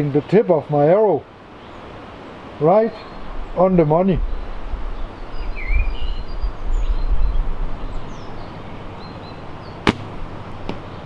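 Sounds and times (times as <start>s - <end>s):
birds chirping: 0.0s - 11.0s
wind rumble on microphone: 3.2s - 9.0s
bowstring snap: 9.8s - 10.8s.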